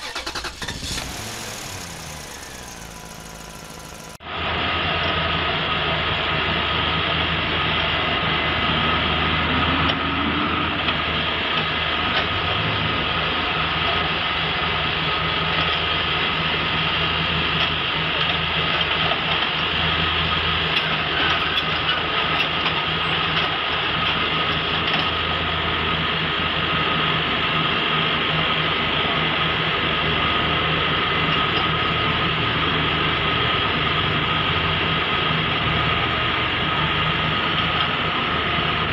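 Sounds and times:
diesel engine running: 0.0 - 38.9
steady high whine: 0.5 - 7.1.

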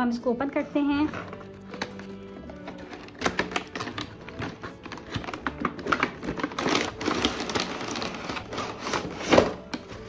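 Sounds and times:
plastic and cardboard crinkling: 1.0 - 10.0.

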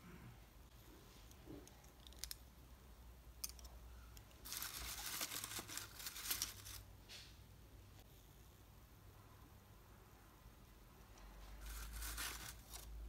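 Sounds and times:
paper filler crinkling: 4.4 - 6.9, 11.6 - 13.0.

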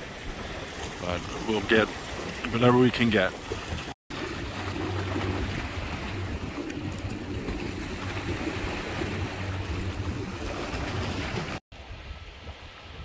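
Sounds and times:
seawater washing at shore: 0.0 - 11.6
wind buffeting microphone: 3.4 - 13.0.

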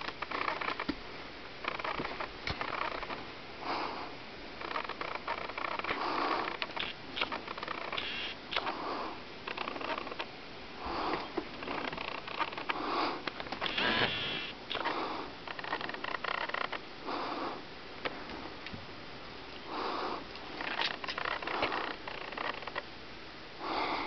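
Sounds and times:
nasal breathing: 3.6 - 10.2, 10.8 - 17.7, 19.6 - 22.7, 23.6 - 24.0.

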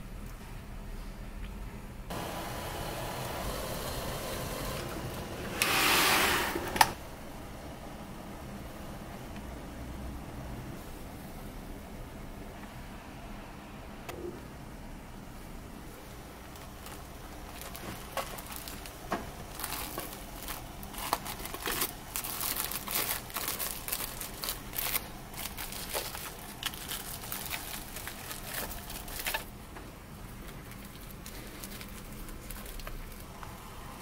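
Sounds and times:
cling film crinkling: 16.0 - 29.6, 30.3 - 33.4.

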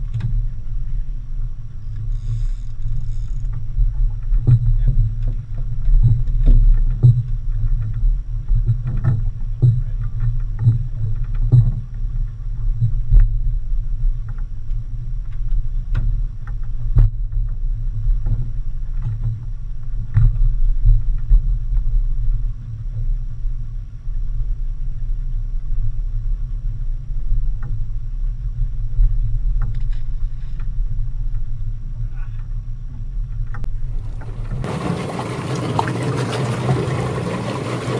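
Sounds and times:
outboard motors rumbling: 0.0 - 37.9
knocks and thumps: 3.8 - 11.9.

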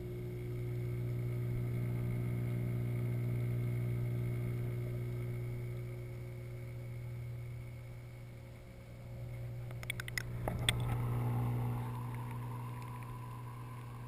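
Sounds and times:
aquarium pump hum underwater: 0.0 - 14.0
sharp clicks and knock: 9.7 - 11.0.

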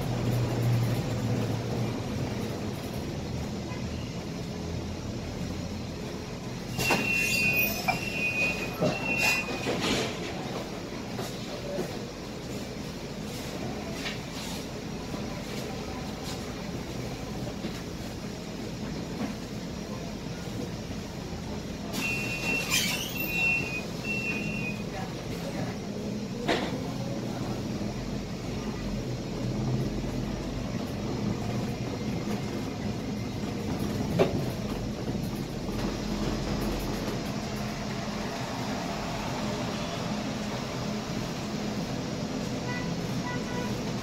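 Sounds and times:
bus engine humming: 0.0 - 44.0
short high electronic beeps: 6.7 - 9.7, 22.0 - 24.8.

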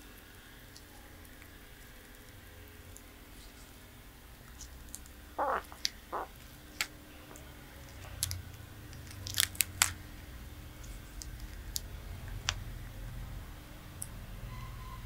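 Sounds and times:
tortoise chewing with crunches: 4.4 - 10.0.

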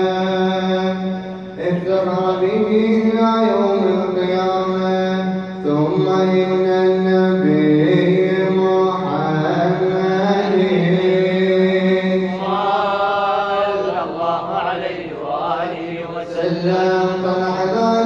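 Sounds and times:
men chanting unaccompanied: 0.0 - 18.0.

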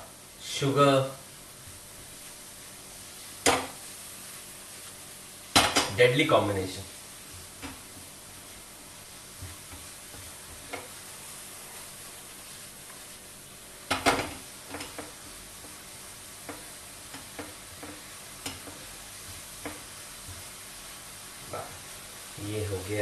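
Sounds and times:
apples sizzling in frying pan: 0.0 - 23.0
spatula tapping pan: 3.4 - 3.8, 9.3 - 11.0, 13.8 - 20.6.

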